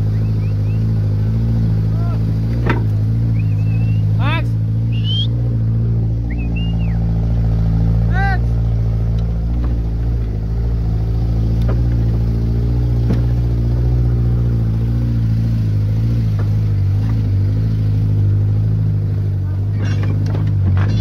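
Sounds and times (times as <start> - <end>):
pickup truck engine running: 0.0 - 21.0
truck knocking and rattling: 2.4 - 3.8, 8.8 - 15.0, 16.0 - 21.0.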